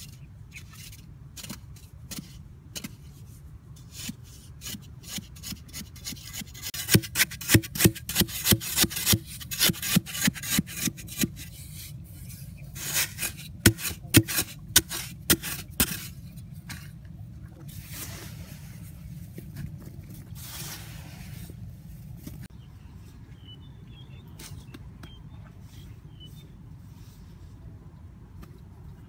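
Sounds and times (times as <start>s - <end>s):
hands scooping loose soil: 6.7s - 17.0s, 17.6s - 22.5s
digging tool striking hard soil: 6.8s - 11.3s, 12.8s - 16.2s.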